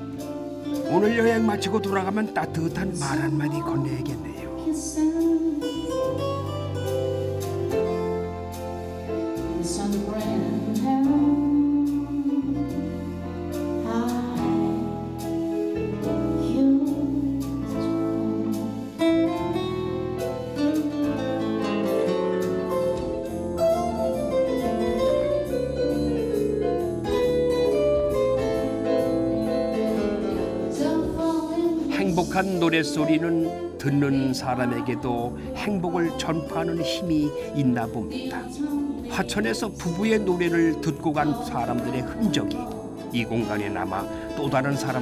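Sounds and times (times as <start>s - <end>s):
keyboard and guitar accompaniment: 0.0s - 45.0s
person singing: 0.8s - 6.4s, 9.4s - 19.4s, 28.4s - 45.0s.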